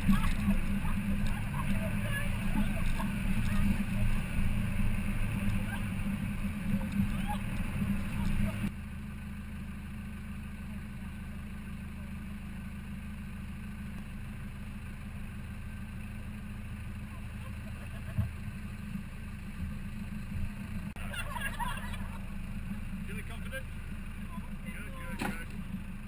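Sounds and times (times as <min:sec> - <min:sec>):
vehicle engine rumbling off road: 0:00.0 - 0:26.0
burst of laughter: 0:17.3 - 0:18.3, 0:21.0 - 0:22.2.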